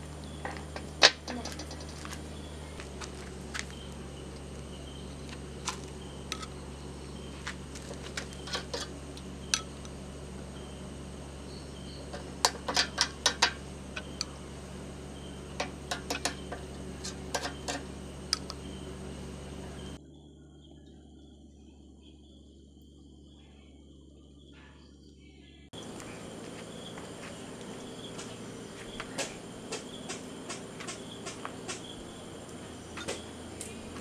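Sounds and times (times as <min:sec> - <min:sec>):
steady low hum: 0:00.0 - 0:34.0
metal spoon clinking on grill and bowl: 0:12.0 - 0:14.3, 0:15.5 - 0:18.6.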